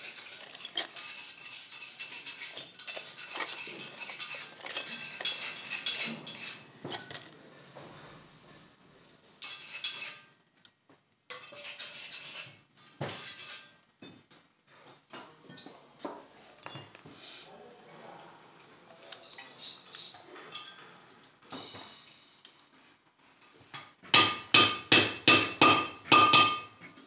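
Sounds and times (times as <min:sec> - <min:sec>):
metallic clinks and scrapes: 0:00.0 - 0:08.8, 0:09.4 - 0:10.4, 0:11.3 - 0:13.8, 0:16.4 - 0:17.5, 0:19.0 - 0:23.8.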